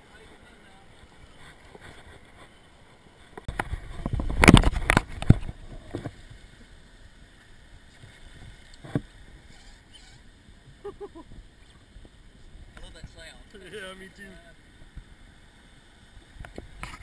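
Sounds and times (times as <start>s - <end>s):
river water hiss: 0.0s - 4.0s, 4.6s - 17.0s.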